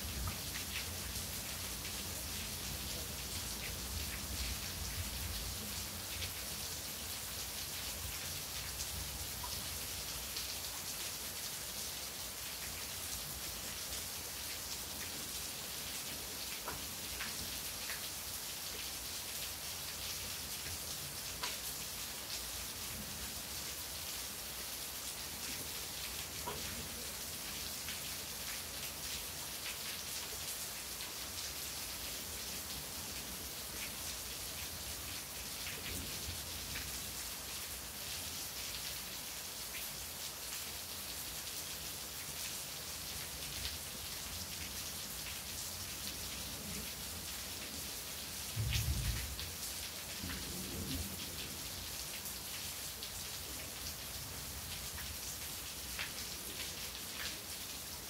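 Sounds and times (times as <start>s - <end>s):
steady rain: 0.0s - 58.0s
low rumble of thunder: 48.6s - 49.4s.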